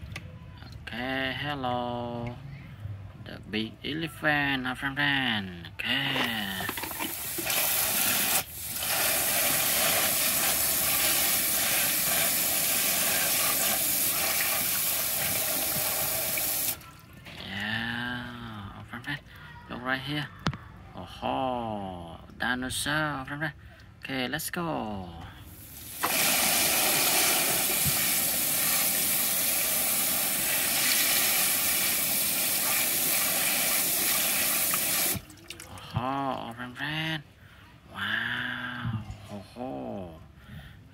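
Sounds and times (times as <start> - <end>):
water spray nozzle hissing: 7.1 - 16.8, 25.6 - 35.2.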